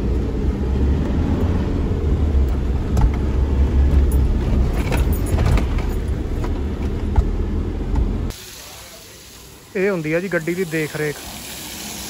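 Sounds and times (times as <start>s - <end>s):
car engine and tyres rumbling: 0.0s - 8.4s.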